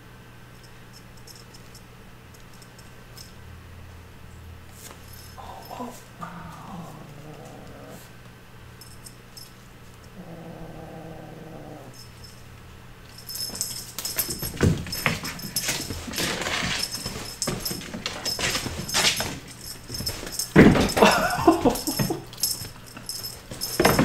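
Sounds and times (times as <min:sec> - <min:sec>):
metallic jingling: 0:04.8 - 0:06.2, 0:08.8 - 0:09.6, 0:12.0 - 0:24.0
toy rustling on rug: 0:13.1 - 0:24.0.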